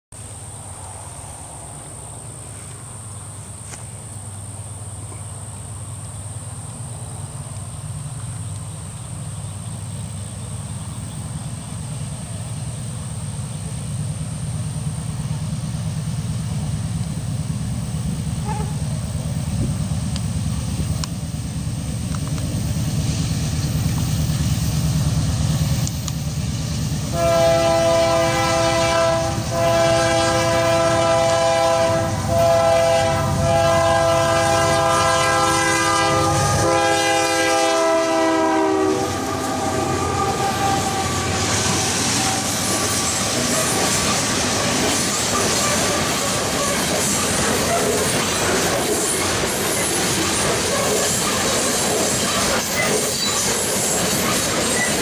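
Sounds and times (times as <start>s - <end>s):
freight train rumbling: 0.1s - 55.0s
train air horn blasts: 18.4s - 19.0s, 27.1s - 43.9s.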